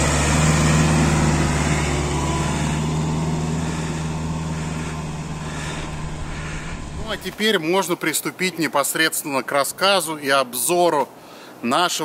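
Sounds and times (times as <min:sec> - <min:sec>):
van engine driving through snow: 0:00.0 - 0:07.4.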